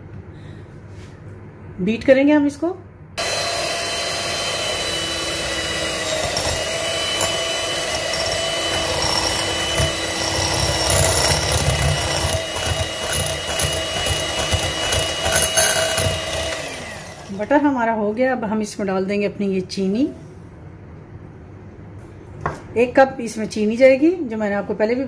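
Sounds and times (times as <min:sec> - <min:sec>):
electric hand mixer whining: 0:03.2 - 0:17.5
beaters rumbling through butter: 0:04.0 - 0:17.4.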